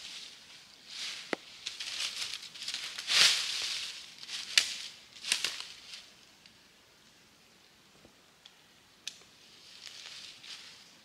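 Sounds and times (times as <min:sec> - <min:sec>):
rustling and crackling: 0:00.0 - 0:06.3, 0:09.6 - 0:10.9.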